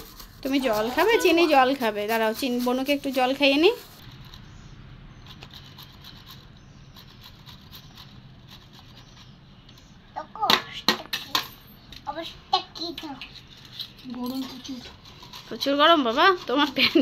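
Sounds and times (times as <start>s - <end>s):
mango rasping on steel grater: 0.0s - 4.5s, 14.6s - 17.0s
person speaking: 0.4s - 3.9s.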